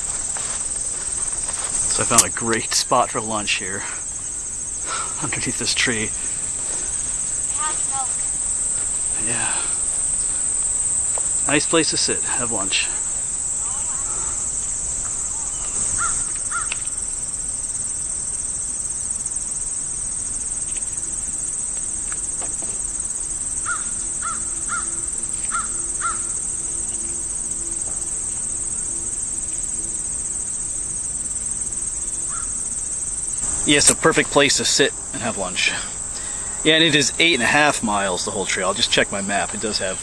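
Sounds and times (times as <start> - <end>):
high-pitched insect chorus: 0.0 - 40.0
bird calling: 4.8 - 17.0, 23.6 - 27.1, 32.2 - 32.6.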